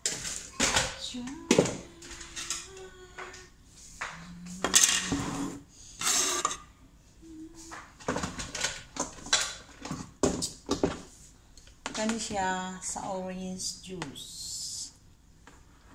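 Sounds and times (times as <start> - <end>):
plastic kitchenware clattering: 0.0 - 2.7.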